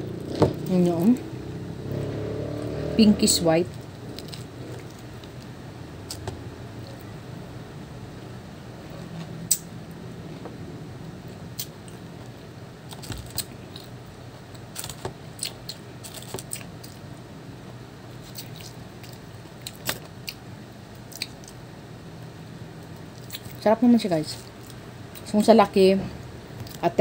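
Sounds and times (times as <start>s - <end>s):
low hum: 0.0s - 14.7s
fruit pulp tearing crackles: 3.6s - 7.0s, 12.8s - 17.0s, 18.2s - 20.4s
chewing: 3.7s - 5.5s, 18.2s - 20.4s, 21.1s - 21.6s.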